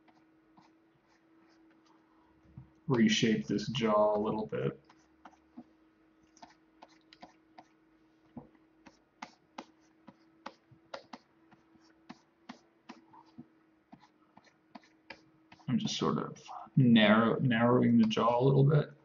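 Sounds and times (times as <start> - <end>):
faint steady hum: 0.0 - 19.0
computer mouse and keyboard clicks: 6.3 - 7.7, 9.2 - 11.3.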